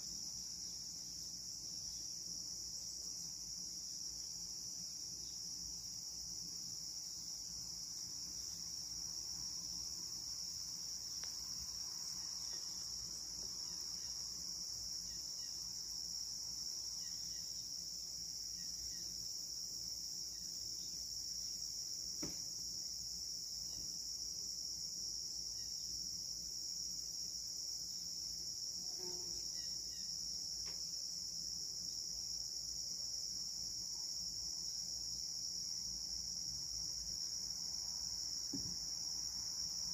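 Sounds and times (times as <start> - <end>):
crickets trilling: 0.0 - 39.9.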